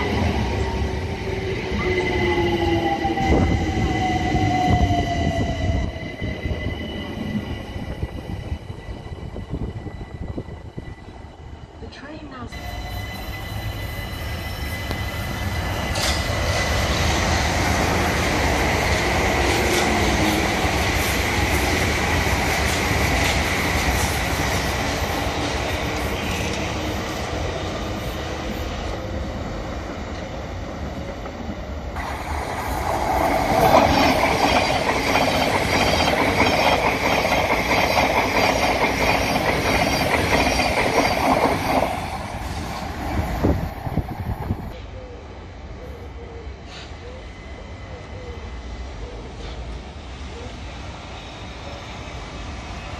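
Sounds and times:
distant electric trains rumbling: 0.0s - 52.9s
train passing close at speed: 0.0s - 52.9s
thin high squeal: 12.5s - 16.1s.

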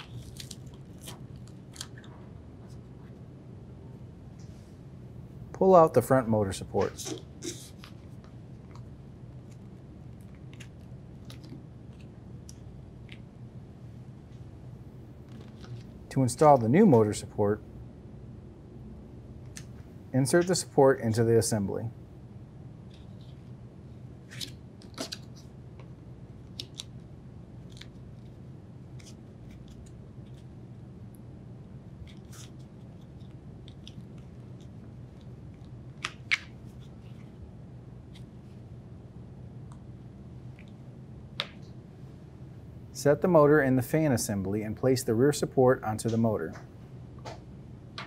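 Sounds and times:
low steady hum: 0.0s - 48.0s
small clicks and handling noises: 32.0s - 37.3s.

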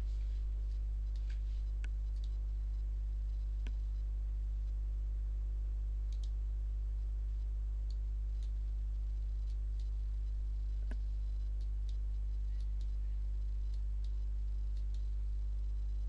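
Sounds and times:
low electrical hum: 0.0s - 16.0s
computer mouse clicking: 6.1s - 6.4s, 13.7s - 15.1s.

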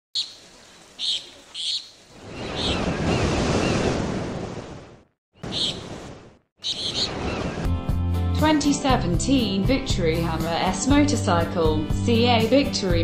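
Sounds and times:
wave washing in: 2.1s - 5.0s.

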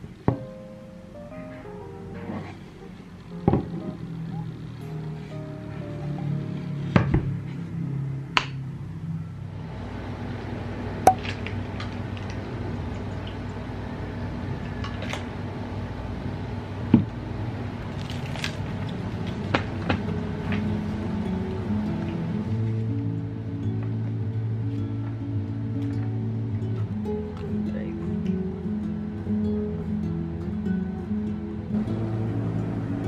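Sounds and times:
soft background music: 0.0s - 10.5s, 17.8s - 33.0s
room hum: 0.0s - 33.0s
paper pages turning: 17.8s - 19.5s.

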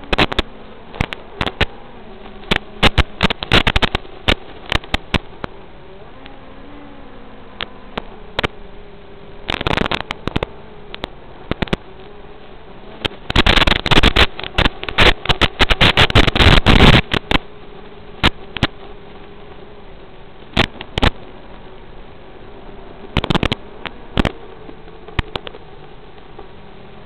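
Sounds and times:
crackling static: 0.0s - 27.0s
steady receiver hiss: 0.0s - 27.0s.

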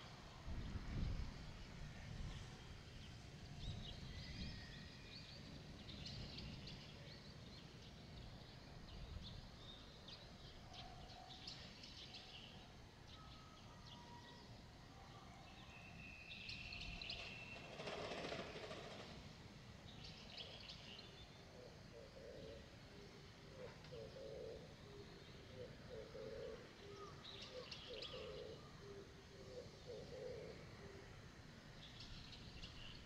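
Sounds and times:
small birds chirping: 23.6s - 28.6s.

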